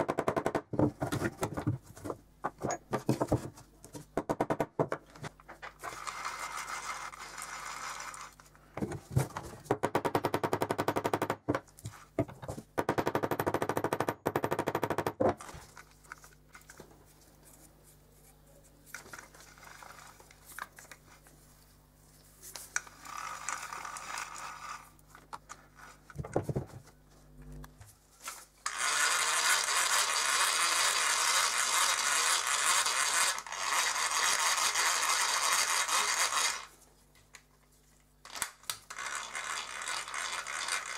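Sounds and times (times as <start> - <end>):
hand drill gears whirring: 5.8 - 8.5, 19.2 - 20.4, 22.8 - 26.0, 28.6 - 36.8, 38.3 - 40.9.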